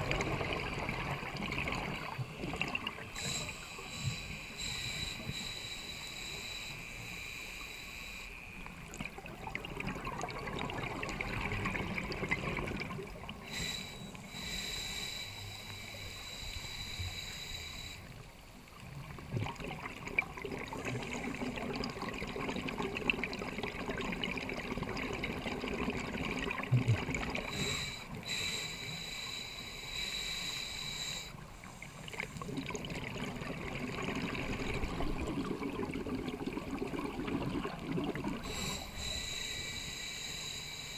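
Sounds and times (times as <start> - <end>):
hissing regulator inhale: 3.0 - 8.7, 13.3 - 18.4, 27.4 - 32.5, 38.4 - 40.9
bubbling exhale underwater: 9.1 - 13.6, 32.1 - 39.3.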